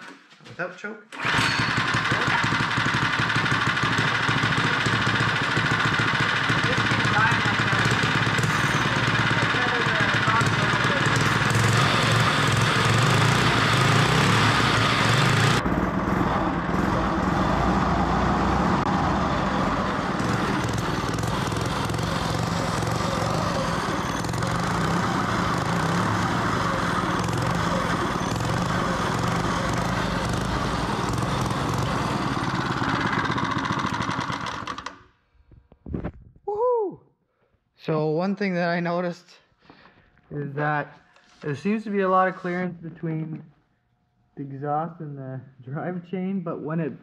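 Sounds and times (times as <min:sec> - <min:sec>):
small engine running: 0:01.2 - 0:35.1.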